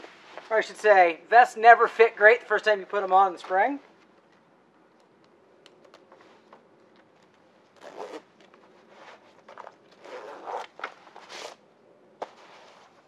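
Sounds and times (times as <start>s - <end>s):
zipper zipping: 7.8s - 8.3s, 10.0s - 11.6s.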